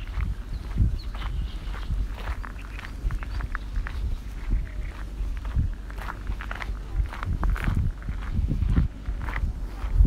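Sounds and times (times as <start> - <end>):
footsteps walking: 0.0 - 10.0
steady low rumble: 0.0 - 10.0.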